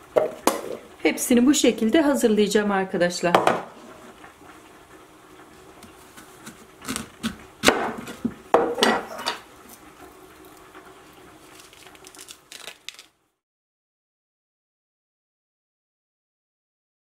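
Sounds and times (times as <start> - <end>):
scraping seeds from fruit: 9.6 - 13.1.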